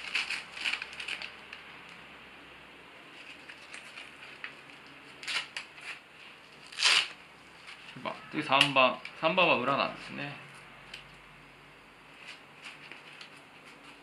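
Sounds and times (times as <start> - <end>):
hook-and-loop straps ripping: 0.0 - 1.6, 3.2 - 6.0, 6.6 - 7.2.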